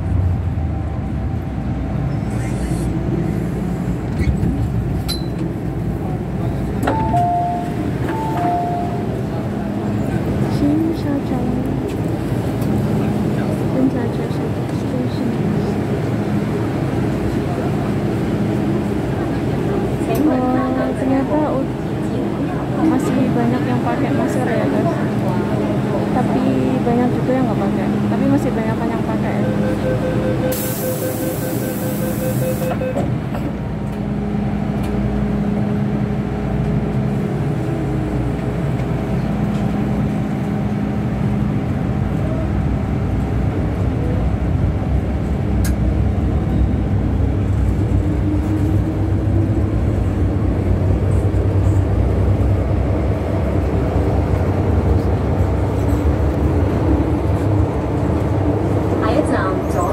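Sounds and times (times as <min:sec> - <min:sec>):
metro train rumble: 0:00.0 - 0:59.9
rising train whine: 0:00.0 - 0:59.9
beeping tone: 0:06.9 - 0:09.1, 0:29.2 - 0:33.0.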